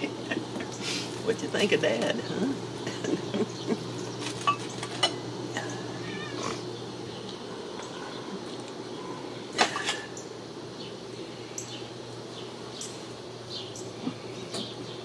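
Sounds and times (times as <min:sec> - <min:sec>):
kitten meowing: 0:06.0 - 0:06.5.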